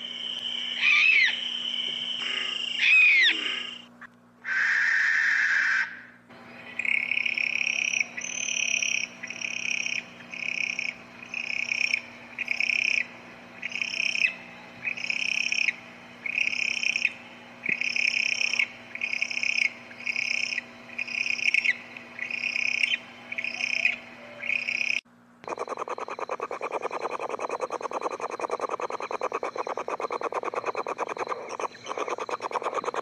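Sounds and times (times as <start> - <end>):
animal hoarse hissing calls: 0.0 - 5.9, 23.5 - 33.0.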